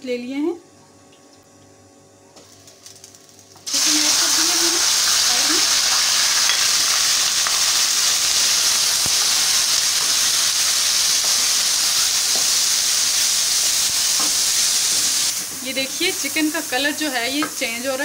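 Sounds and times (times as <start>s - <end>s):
chicken sizzling in hot oil: 2.5s - 18.0s.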